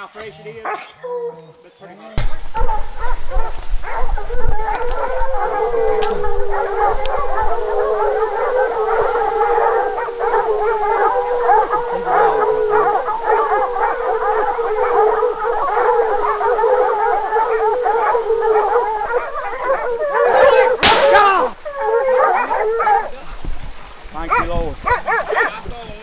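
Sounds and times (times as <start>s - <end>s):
hounds baying: 2.2s - 25.8s
rifle shot with echo: 20.8s - 21.3s.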